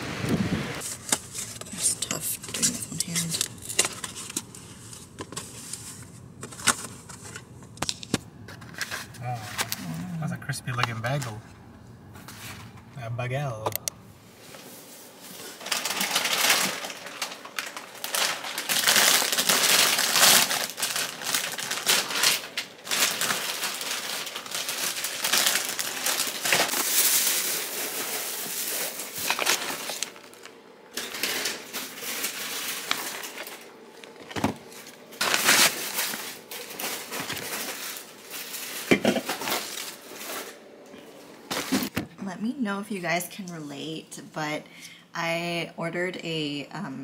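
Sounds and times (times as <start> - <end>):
paper wrapping crinkling: 0.8 - 10.1, 15.1 - 42.0.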